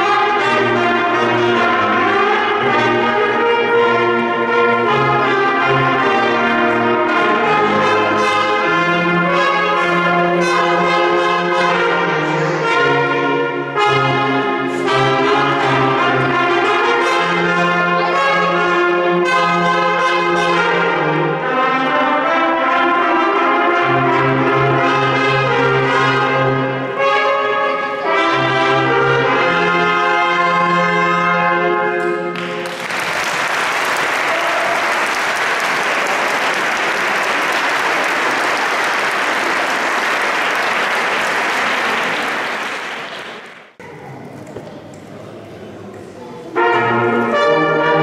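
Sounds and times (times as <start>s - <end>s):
brass ensemble playing chords: 0.0s - 43.6s, 46.4s - 48.0s
audience applauding: 32.3s - 43.8s.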